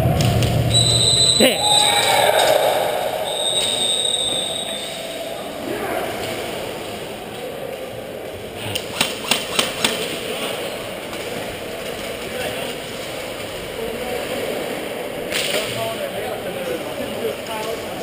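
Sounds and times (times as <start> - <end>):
high steady tone: 0.7 - 5.6.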